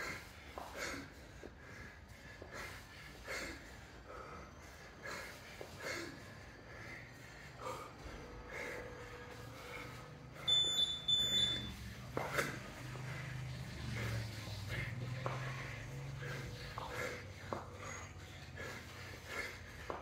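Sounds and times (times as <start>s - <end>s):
man breathing heavily: 0.0s - 20.0s
high-pitched electronic beeps: 10.4s - 11.8s.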